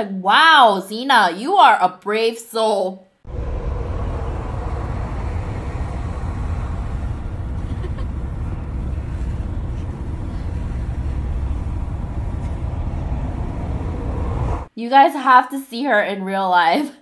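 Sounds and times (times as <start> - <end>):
road noise inside moving car: 3.3 - 14.7
wind rushing through car window: 3.3 - 14.7.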